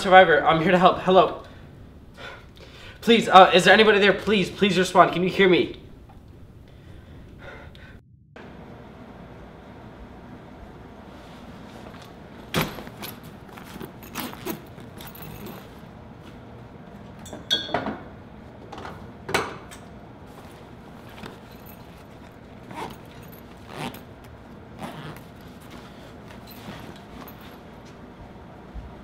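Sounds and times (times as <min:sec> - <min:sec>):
metal buckles clinking: 0:12.6 - 0:15.9, 0:20.4 - 0:27.9.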